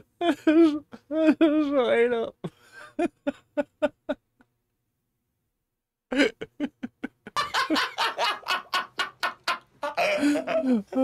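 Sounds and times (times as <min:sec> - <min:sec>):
man laughing hard: 0:06.1 - 0:11.0.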